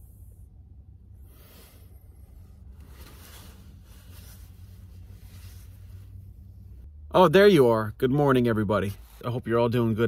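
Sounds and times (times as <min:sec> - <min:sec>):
steady low hum: 0:00.0 - 0:08.2
blankets rustling: 0:02.8 - 0:06.4.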